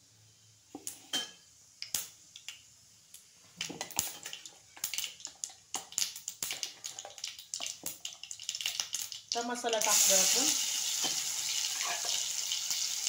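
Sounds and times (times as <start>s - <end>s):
seeds popping in hot oil: 0.7s - 13.0s.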